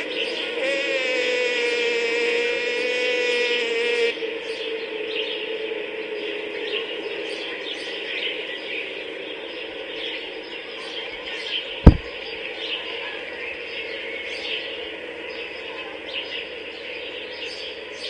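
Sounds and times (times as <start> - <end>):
birds chirping: 4.4 - 18.0
loud low thump: 11.8 - 12.1.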